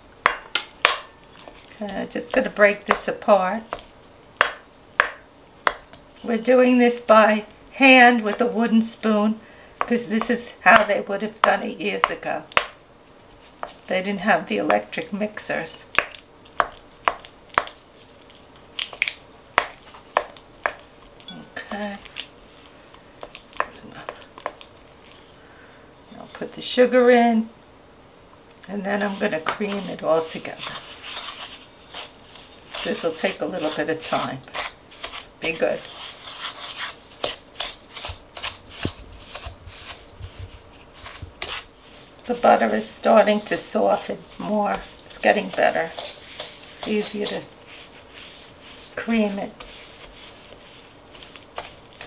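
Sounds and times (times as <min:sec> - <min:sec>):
wooden spoon scraping bowl: 0:28.8 - 0:52.0.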